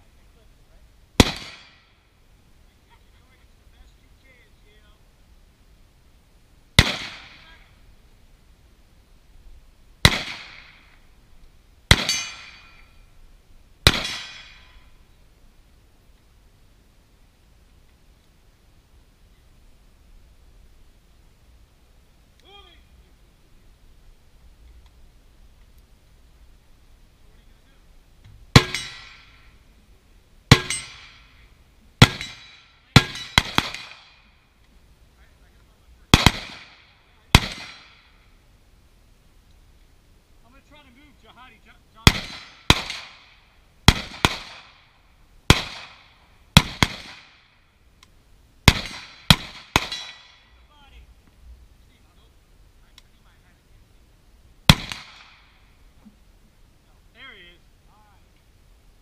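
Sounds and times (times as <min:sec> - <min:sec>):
gunshots with echo: 0:01.2 - 0:01.8, 0:06.8 - 0:07.4, 0:10.0 - 0:10.8, 0:13.8 - 0:14.7, 0:36.1 - 0:38.1, 0:42.0 - 0:43.2, 0:48.7 - 0:50.3
rifle shots with echo: 0:01.2 - 0:01.9, 0:06.8 - 0:07.6, 0:10.0 - 0:10.9, 0:11.9 - 0:12.8, 0:13.8 - 0:14.8, 0:28.5 - 0:29.5, 0:30.5 - 0:31.4, 0:32.0 - 0:34.3, 0:36.1 - 0:38.2, 0:42.0 - 0:44.9, 0:45.5 - 0:47.5, 0:48.6 - 0:50.5, 0:54.7 - 0:55.6.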